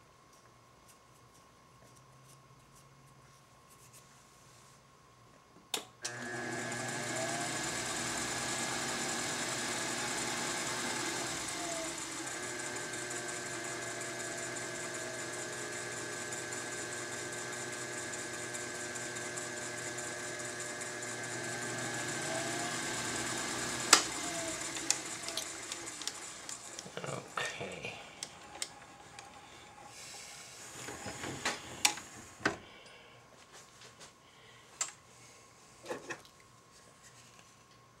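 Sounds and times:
lathe motor humming: 6.1 - 32.4.

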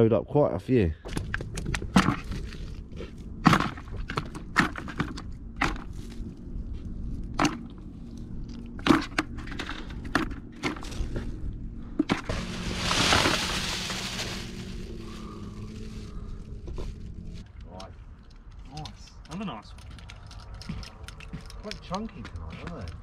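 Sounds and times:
hissing rush of noise: 12.2 - 16.6.

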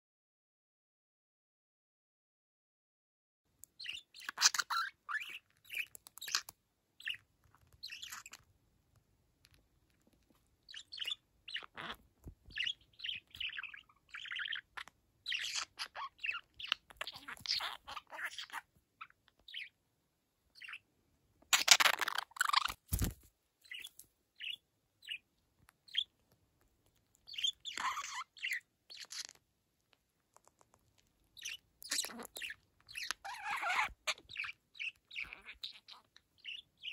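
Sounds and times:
budgerigar chirping and warbling: 3.8 - 8.4, 10.7 - 19.8, 20.6 - 20.8, 21.5 - 22.8, 23.6 - 25.2, 25.8 - 26.1, 27.3 - 29.4, 31.4 - 36.9.

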